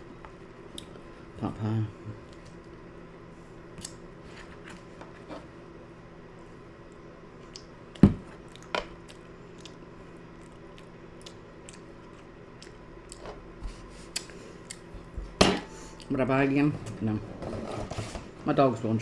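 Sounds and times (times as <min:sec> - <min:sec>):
chewing food: 0:07.4 - 0:13.3.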